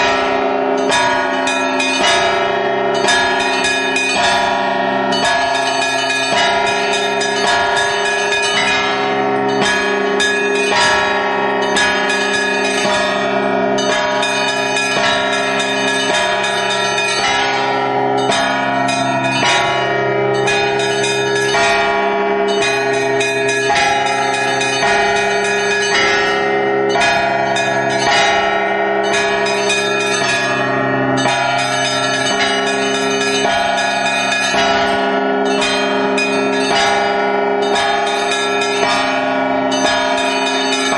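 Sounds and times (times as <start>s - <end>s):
deep bells ringing: 0.0s - 40.9s.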